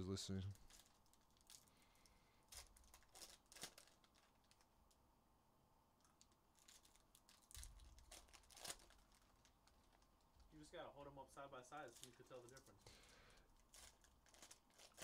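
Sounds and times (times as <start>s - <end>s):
foil wrappers crinkling and tearing: 0.5s - 1.7s, 2.5s - 4.7s, 6.2s - 10.1s, 11.7s - 12.8s, 13.5s - 15.0s.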